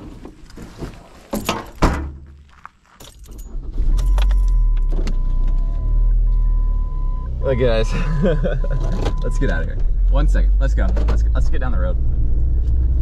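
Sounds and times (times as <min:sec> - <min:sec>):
keys jangling: 0:03.0 - 0:04.5
electronic dashboard tone: 0:03.8 - 0:09.7.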